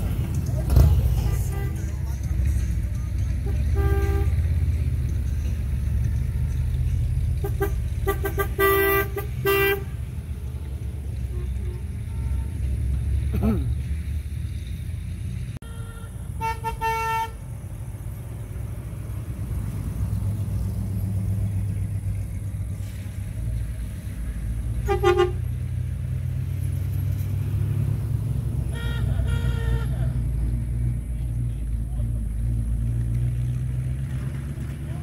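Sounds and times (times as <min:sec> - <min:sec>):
cars driving past rumbling: 0:00.0 - 0:35.0
car horns tooting: 0:00.7 - 0:02.2, 0:03.3 - 0:04.8, 0:07.3 - 0:10.4, 0:11.1 - 0:12.9, 0:15.6 - 0:17.5, 0:24.7 - 0:25.6, 0:28.6 - 0:30.3.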